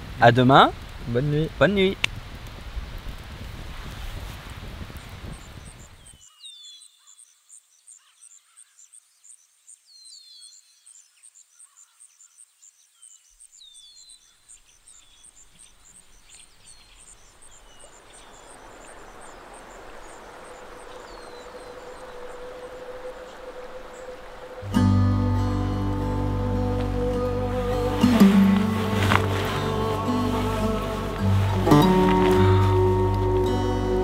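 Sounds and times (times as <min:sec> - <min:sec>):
birds chirping: 0:05.3 - 0:34.0
rising hiss: 0:18.6 - 0:34.0
very high pips: 0:21.8 - 0:34.0
held note: 0:24.6 - 0:34.0.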